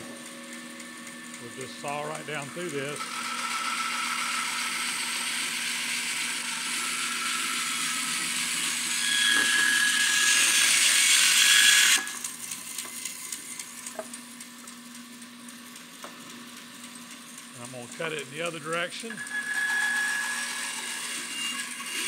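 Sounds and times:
bandsaw humming: 0:00.0 - 0:15.0, 0:16.0 - 0:22.0
bandsaw cutting wood: 0:01.3 - 0:13.9, 0:17.6 - 0:22.0.

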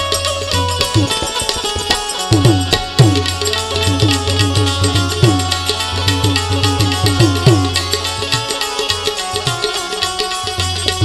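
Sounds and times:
banjo sustained melody: 0:00.0 - 0:11.0
tabla rhythm with bass glides: 0:00.0 - 0:11.0.

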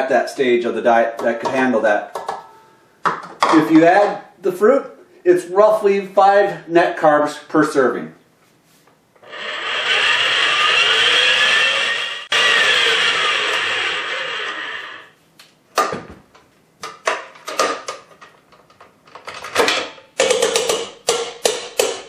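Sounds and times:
electric stand mixer running: 0:09.2 - 0:15.0
mixer clacks and knocks: 0:19.6 - 0:22.0.

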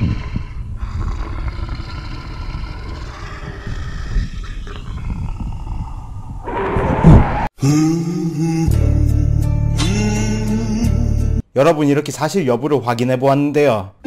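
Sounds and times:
low rumbling dinosaur growl: 0:00.0 - 0:07.5
loud crash: 0:06.4 - 0:07.5.

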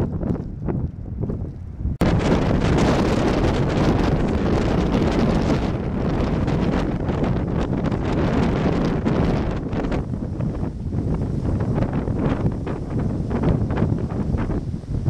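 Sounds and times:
blizzard wind buffeting microphone: 0:00.0 - 0:15.0.

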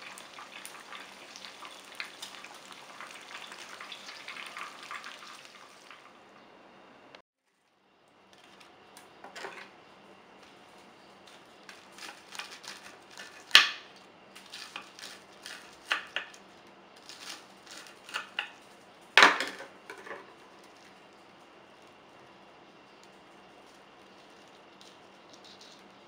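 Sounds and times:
knife crunching through fried crust: 0:10.6 - 0:18.8.

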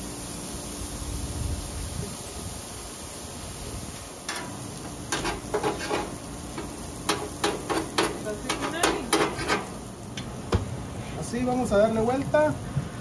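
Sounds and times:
cheese sizzling on a hot plate: 0:00.0 - 0:12.5
metal spatula scraping a griddle: 0:04.3 - 0:09.8.

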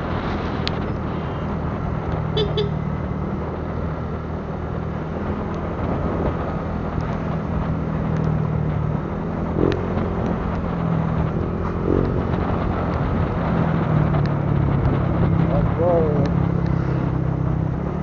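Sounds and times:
wind and road noise: 0:00.0 - 0:18.0.

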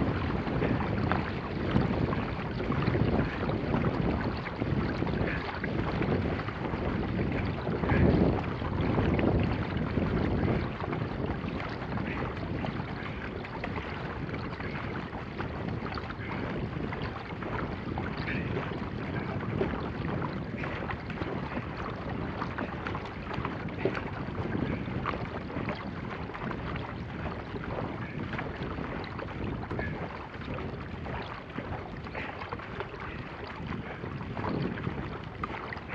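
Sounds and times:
paddle strokes splashing: 0:00.0 - 0:35.9
water rushing along kayak hull: 0:00.0 - 0:35.9
wind buffeting microphone: 0:00.0 - 0:35.9.

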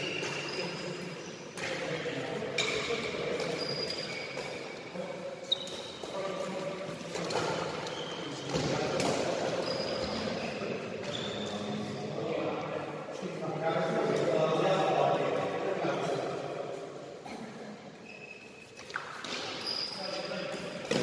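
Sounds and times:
shoes squeaking on court floor: 0:00.0 - 0:12.2, 0:17.9 - 0:21.0.

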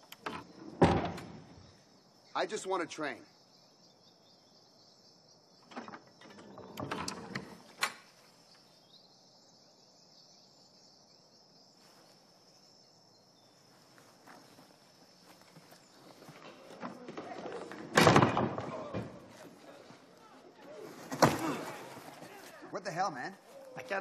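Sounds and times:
crickets chirring: 0:00.0 - 0:24.0
wooden door creaking: 0:00.2 - 0:01.4, 0:05.6 - 0:08.0, 0:16.4 - 0:19.4.

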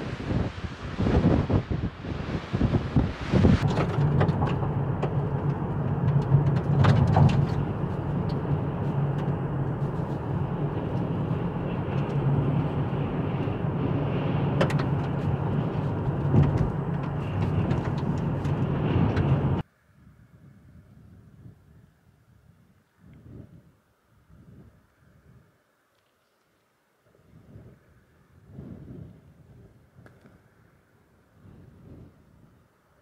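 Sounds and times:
car engine and tyre drone: 0:00.0 - 0:19.7.

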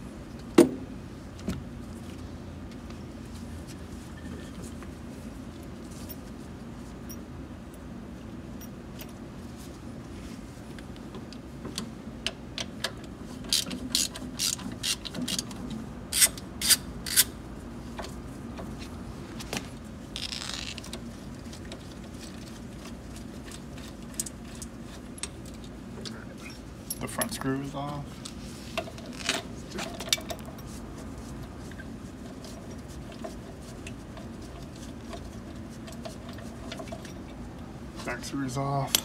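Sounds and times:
ratchet wrench clicking: 0:16.1 - 0:17.3.

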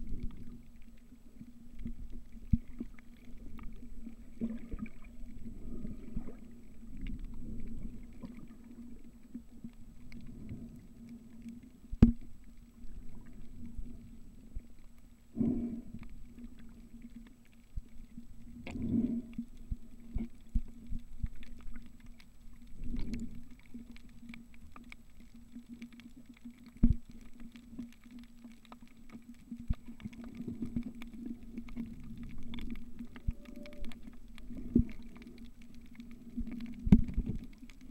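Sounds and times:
muffled underwater rumble: 0:00.0 - 0:37.9.

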